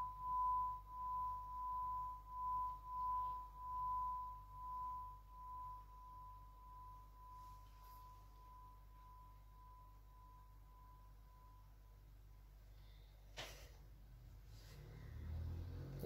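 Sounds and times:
singing bowl ringing tone: 0:00.0 - 0:12.3.

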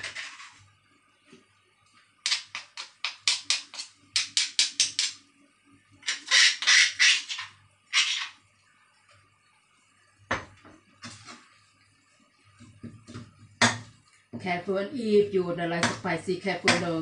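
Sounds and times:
stone pestle pounding in mortar: 0:16.7 - 0:16.9.

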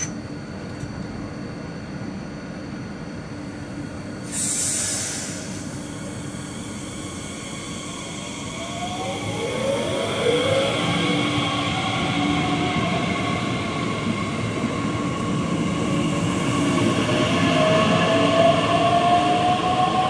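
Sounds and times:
train traction motor whine: 0:00.0 - 0:20.0
electric train humming: 0:02.8 - 0:20.0
air hiss: 0:04.2 - 0:08.5.

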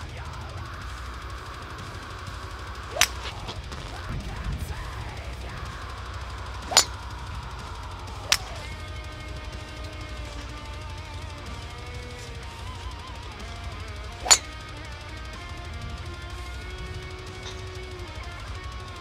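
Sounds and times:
heavy metal music with drums: 0:00.0 - 0:19.0
golf driver striking ball: 0:02.6 - 0:03.7, 0:06.3 - 0:18.8.

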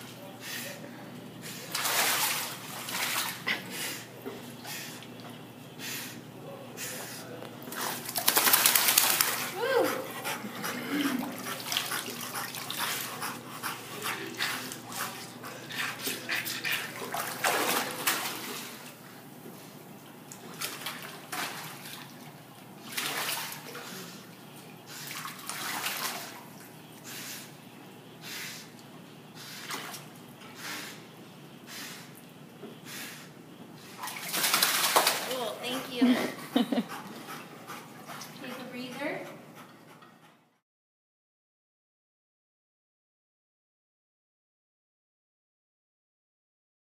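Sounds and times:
water splashing: 0:01.5 - 0:03.5, 0:07.7 - 0:09.6, 0:16.9 - 0:19.0, 0:20.3 - 0:24.1, 0:24.9 - 0:26.7, 0:34.0 - 0:35.8
dog panting: 0:09.3 - 0:17.0, 0:35.4 - 0:40.6.

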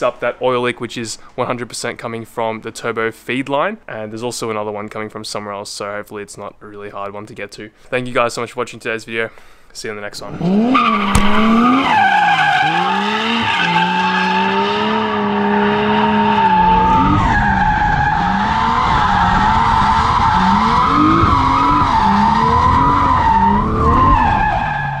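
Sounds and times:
car engine revving: 0:10.3 - 0:24.7
warbling tyre squeal: 0:10.5 - 0:25.0.

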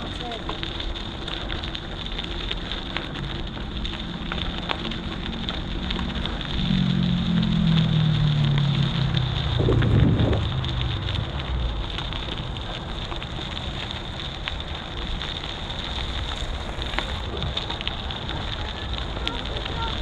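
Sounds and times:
motor vehicle engine hum passing: 0:02.0 - 0:20.0
wind rushing over microphone: 0:02.8 - 0:20.0.

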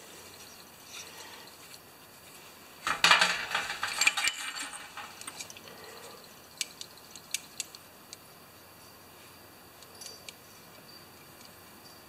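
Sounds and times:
small parts clicking: 0:02.8 - 0:05.7, 0:06.6 - 0:08.2
metal part clattering on steel pan: 0:02.9 - 0:05.4.

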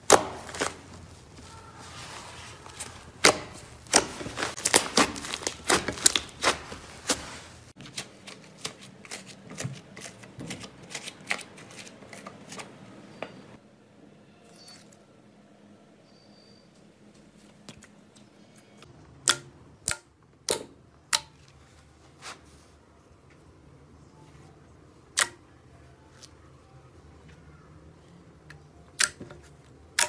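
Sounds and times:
slime crackling and popping: 0:03.2 - 0:06.7.

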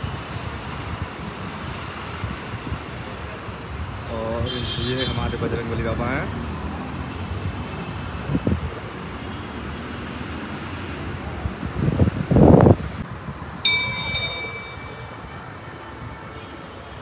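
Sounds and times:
bell ringing: 0:13.6 - 0:15.4.

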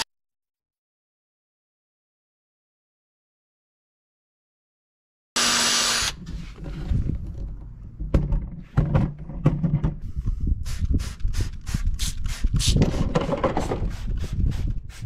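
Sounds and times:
spray bottle squirting water: 0:10.6 - 0:15.0.

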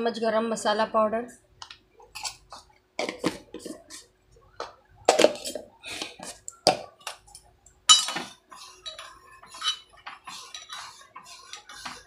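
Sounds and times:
spoon clinking and scraping in pot: 0:07.3 - 0:12.0.

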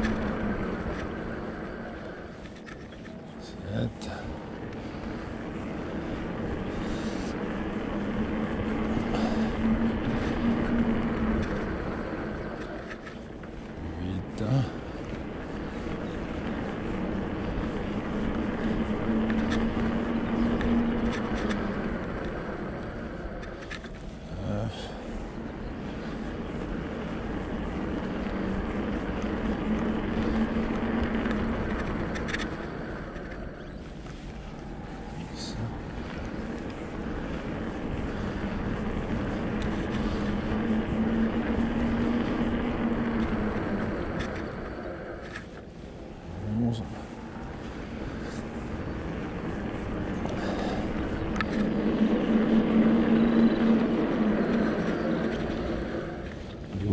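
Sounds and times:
bike tires rolling on trail: 0:00.0 - 0:56.9
electric bike motor hum: 0:00.0 - 0:56.9
scattered clicks: 0:15.0 - 0:24.1, 0:25.5 - 0:56.9.

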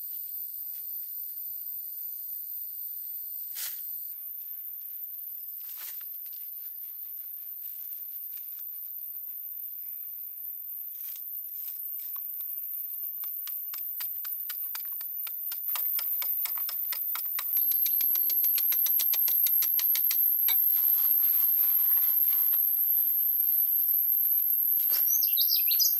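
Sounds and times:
insects high-pitched whine: 0:00.1 - 0:25.9
fast insect ticking: 0:12.1 - 0:25.9.

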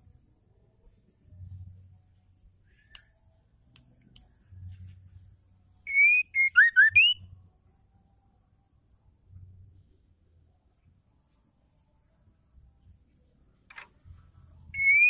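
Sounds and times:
faint clicks: 0:02.6 - 0:04.5
bird whistling song: 0:05.9 - 0:07.3, 0:14.7 - 0:15.0.

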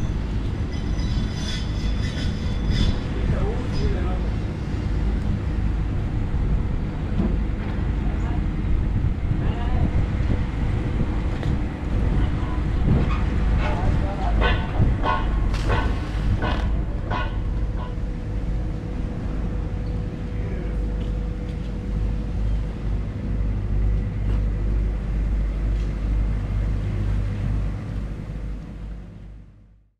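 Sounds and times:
sharp knocks: 0:14.4 - 0:17.9.

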